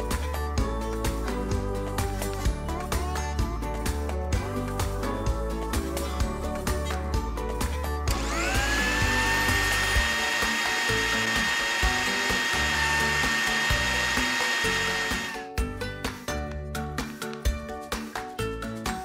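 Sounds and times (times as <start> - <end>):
background music: 0.0 - 19.0
blender motor whining: 8.1 - 15.6.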